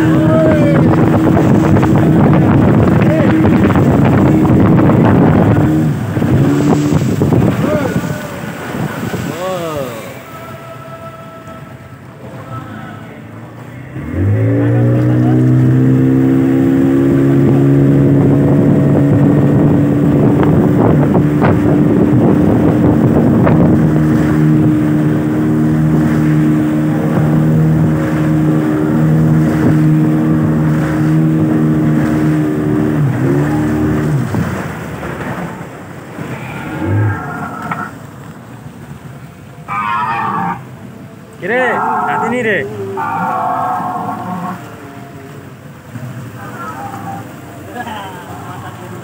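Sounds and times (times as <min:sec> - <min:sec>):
speedboat motor: 0:00.0 - 0:49.0
water rushing: 0:00.0 - 0:49.0
wind: 0:00.0 - 0:49.0.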